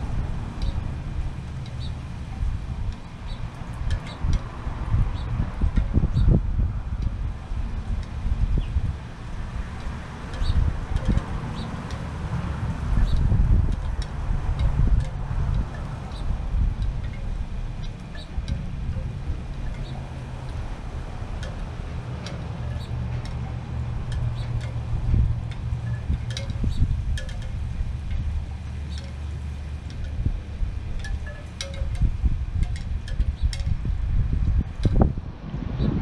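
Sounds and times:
wind rumbling on microphone: 0:00.0 - 0:36.0
wind chime tinkling: 0:31.0 - 0:33.7.

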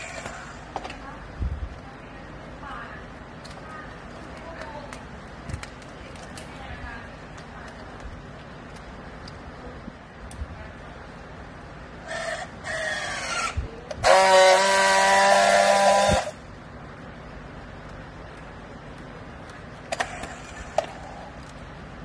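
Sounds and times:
strapping tool motor whining: 0:12.0 - 0:16.4.

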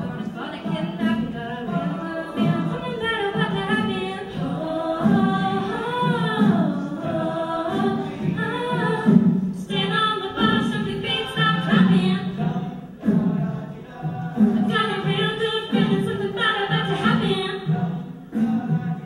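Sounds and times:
a cappella group singing: 0:00.0 - 0:19.0.

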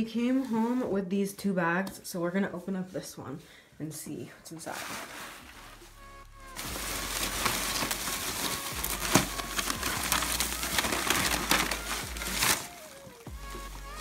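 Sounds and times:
plastic bag rustling and crinkling: 0:04.5 - 0:14.0.

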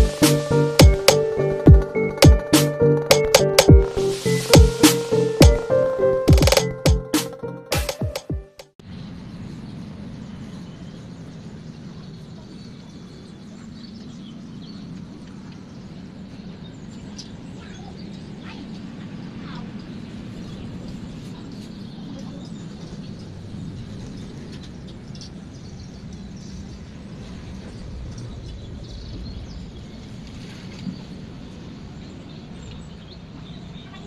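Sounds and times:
small birds chirping: 0:09.5 - 0:34.0
steady low rumble: 0:22.2 - 0:32.4.

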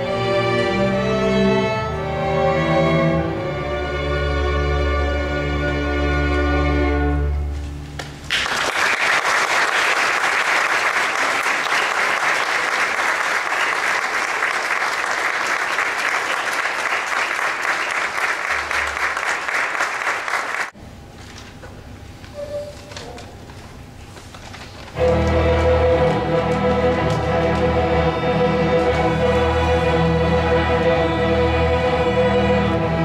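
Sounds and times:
audience applauding: 0:08.2 - 0:20.8
string orchestra chord: 0:25.0 - 0:33.0.

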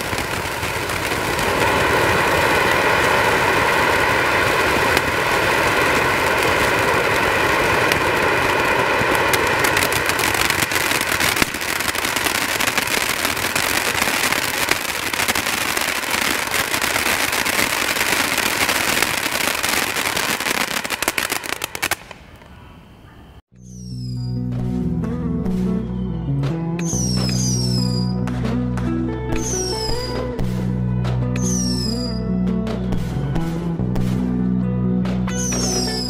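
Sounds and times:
fountain firework spraying hiss: 0:00.0 - 0:22.4, 0:35.4 - 0:36.0
firework crackling: 0:00.0 - 0:23.0, 0:23.6 - 0:24.2, 0:26.8 - 0:28.1, 0:29.3 - 0:32.2, 0:35.3 - 0:36.0.

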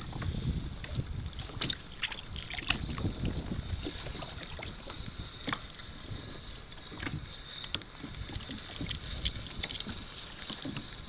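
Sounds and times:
water slapping kayak hull: 0:00.0 - 0:11.0
wind on microphone: 0:00.0 - 0:11.0
fishing reel clicking: 0:08.3 - 0:10.3.

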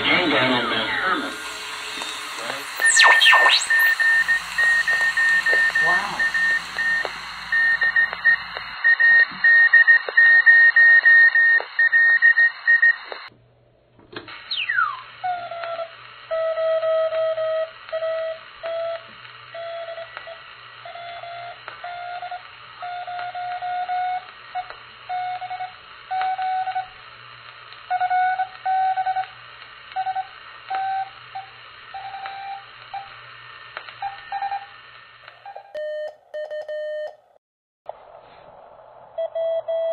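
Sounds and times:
radio hiss: 0:00.0 - 0:13.3
morse code tones: 0:00.8 - 0:12.4
whistle sliding down in pitch: 0:00.9 - 0:08.8, 0:14.5 - 0:19.0.

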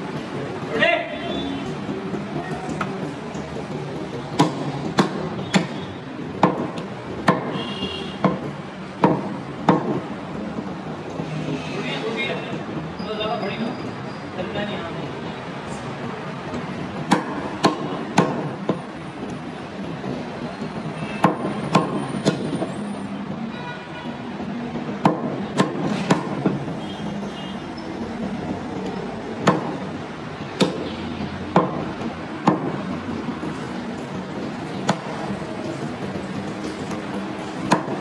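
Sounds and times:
steady background noise: 0:00.0 - 0:38.0
cleaver chopping on wooden block: 0:04.4 - 0:05.8, 0:06.4 - 0:07.6, 0:09.0 - 0:10.0, 0:17.1 - 0:18.8, 0:25.0 - 0:26.6, 0:29.4 - 0:29.8, 0:30.6 - 0:30.8, 0:31.5 - 0:31.8, 0:32.4 - 0:32.8, 0:34.8 - 0:35.1, 0:37.6 - 0:38.0.

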